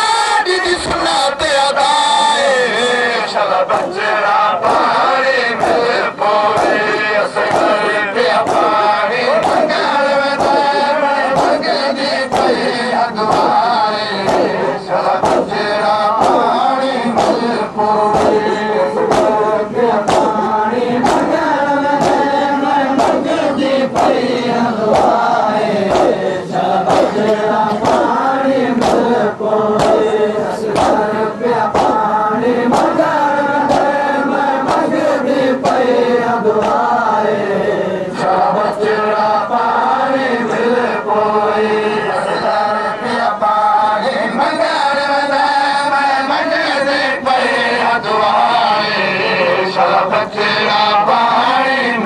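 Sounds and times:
men chanting in unison: 0:00.0 - 0:52.0
chest-beating slaps: 0:05.5 - 0:21.4, 0:22.0 - 0:29.2, 0:29.8 - 0:35.0, 0:35.6 - 0:36.0, 0:36.6 - 0:36.9.

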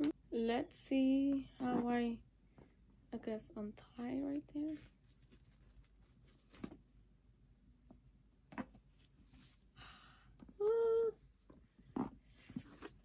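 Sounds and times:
ribbon rustling: 0:04.2 - 0:06.8.

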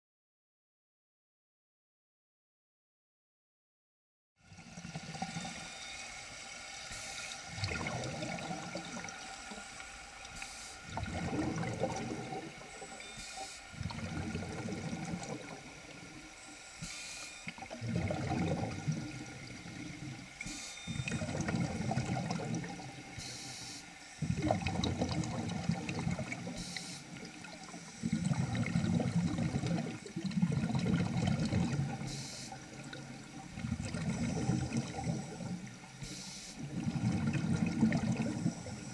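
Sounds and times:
regulator air bubbling underwater: 0:04.5 - 0:38.9
inhalation hiss: 0:05.4 - 0:07.9, 0:09.3 - 0:11.0, 0:12.7 - 0:13.8, 0:16.4 - 0:17.5, 0:20.4 - 0:21.0, 0:23.2 - 0:24.5, 0:26.4 - 0:28.2, 0:32.0 - 0:32.6, 0:34.3 - 0:36.7.

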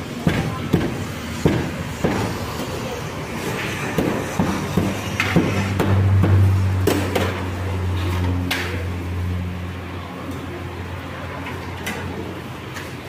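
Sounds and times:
low steady drone: 0:01.1 - 0:11.3.

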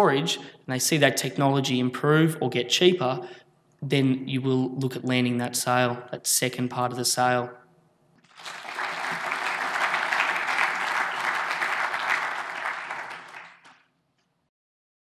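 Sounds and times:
audience applauding: 0:08.3 - 0:13.8.

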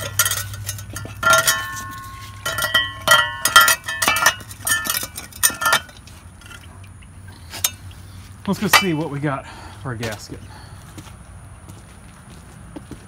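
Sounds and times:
metal parts clinking on concrete: 0:00.0 - 0:06.7, 0:07.6 - 0:07.9, 0:08.5 - 0:09.1.

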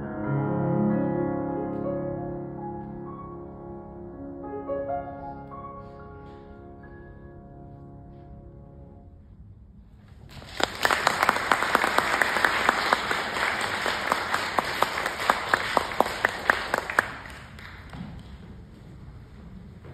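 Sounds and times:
audience applauding: 0:10.3 - 0:18.3
sharp loud claps: 0:10.3 - 0:18.4.

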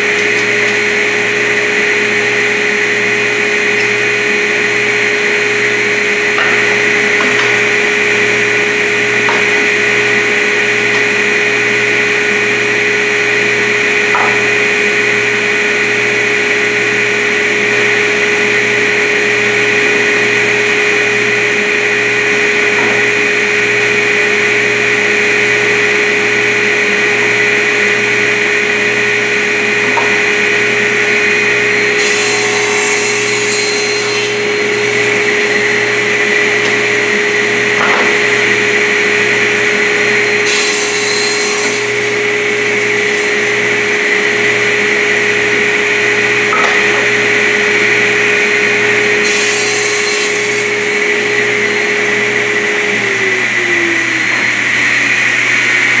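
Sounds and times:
table saw running: 0:00.0 - 0:56.0
saw blade cutting wood: 0:03.2 - 0:13.0, 0:13.8 - 0:15.1, 0:29.5 - 0:45.3, 0:46.0 - 0:52.4.

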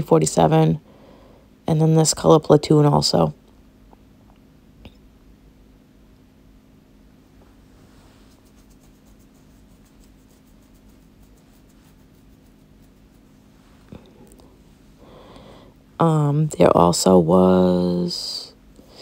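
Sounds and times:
faint steady hum: 0:00.0 - 0:19.0
light scratchy rustling: 0:07.3 - 0:15.0.

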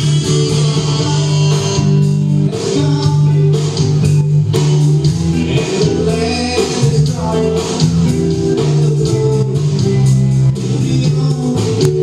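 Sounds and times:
bass with held low notes: 0:00.0 - 0:12.0
guitar: 0:00.0 - 0:12.0
live band playing: 0:00.0 - 0:12.0.

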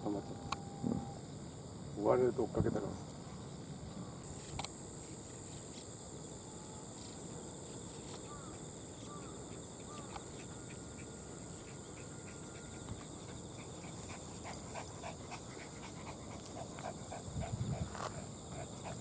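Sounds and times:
high drone of insects: 0:00.0 - 0:19.0
dog panting: 0:09.2 - 0:19.0.

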